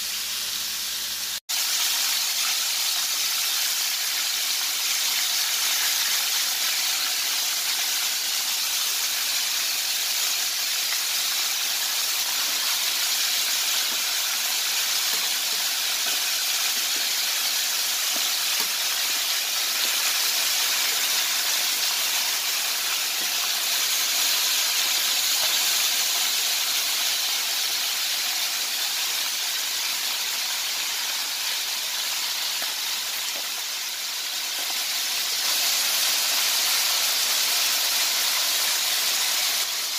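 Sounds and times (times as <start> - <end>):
hot oil sizzling: 0.0 - 39.9.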